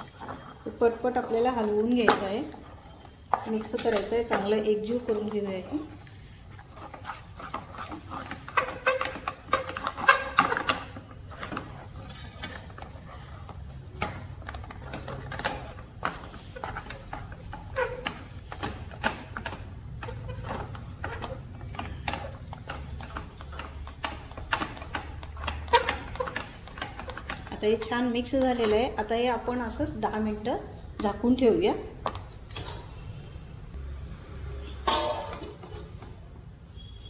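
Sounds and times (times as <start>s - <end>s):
spatula scraping a steel pan: 0.0s - 29.0s.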